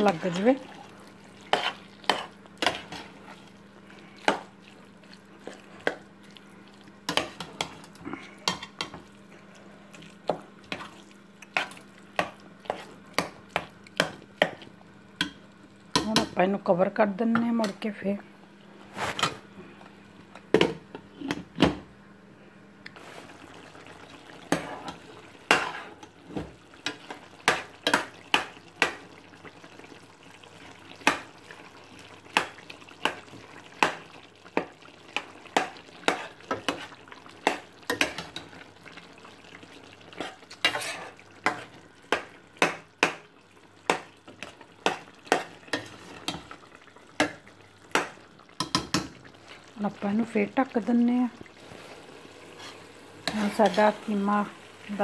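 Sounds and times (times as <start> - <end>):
mince sizzling: 0.0 - 18.0, 22.9 - 55.0
metal ladle scraping a pot: 40.7 - 41.2.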